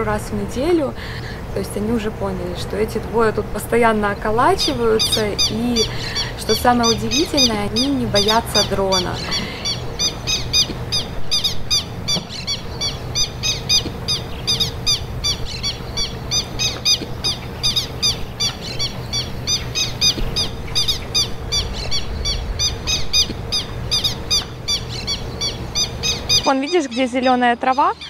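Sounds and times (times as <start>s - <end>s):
bird alarm calls: 3.8s - 28.0s.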